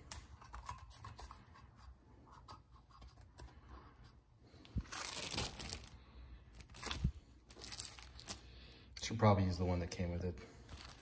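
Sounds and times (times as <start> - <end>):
packaging crinkling: 4.8 - 8.6, 10.6 - 11.0.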